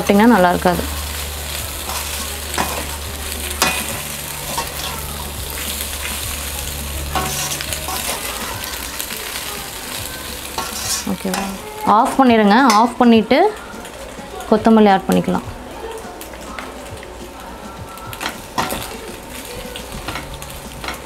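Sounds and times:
pasta and vegetables sizzling: 0:00.0 - 0:21.0
metal spoon clinking against pan: 0:01.8 - 0:03.0, 0:03.6 - 0:05.0, 0:07.1 - 0:08.7, 0:10.5 - 0:11.6, 0:12.5 - 0:13.0, 0:18.2 - 0:19.0.

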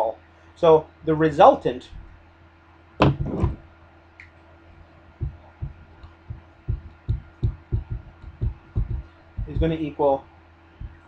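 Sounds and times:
low hum: 0:01.7 - 0:11.0
marker knocking on whiteboard: 0:03.0 - 0:03.6, 0:05.2 - 0:09.7.

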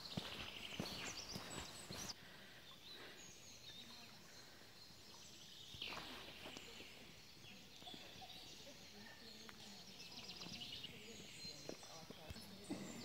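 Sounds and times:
footsteps crunching on leaves: 0:00.1 - 0:02.1.

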